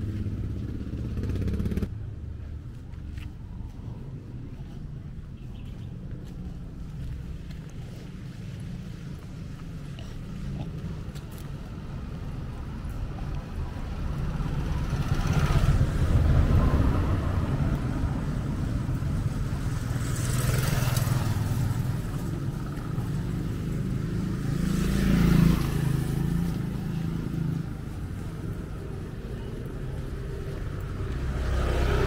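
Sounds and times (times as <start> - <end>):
vehicles passing with engines running: 0.0 - 32.0.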